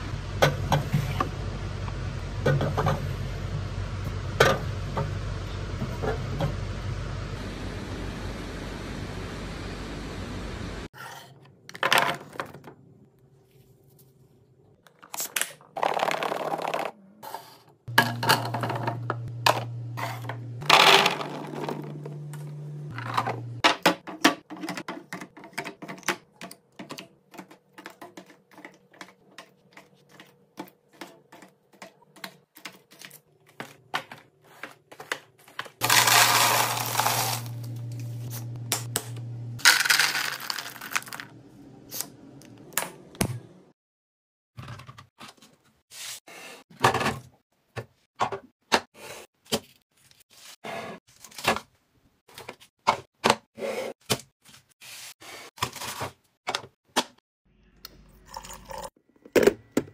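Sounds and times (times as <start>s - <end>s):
snacks pouring into plastic containers: 35.8s - 37.7s, 39.6s - 41.3s.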